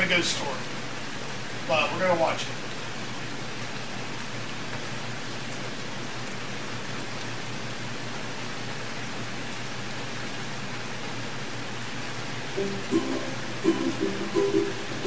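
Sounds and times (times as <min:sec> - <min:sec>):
microphone hiss: 0:00.0 - 0:03.7, 0:11.1 - 0:15.0.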